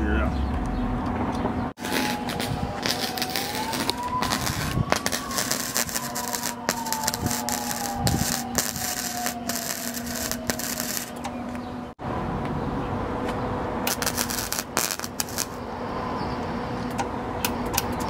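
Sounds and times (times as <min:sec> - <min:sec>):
welding arc crackling: 0:01.8 - 0:11.3, 0:13.9 - 0:15.6
welder humming: 0:01.8 - 0:11.7, 0:13.9 - 0:15.6.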